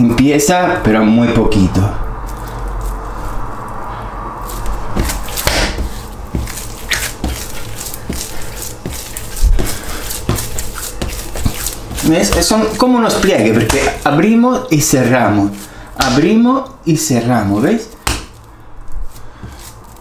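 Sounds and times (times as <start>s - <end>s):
dough slapping and squelching: 4.4s - 20.0s.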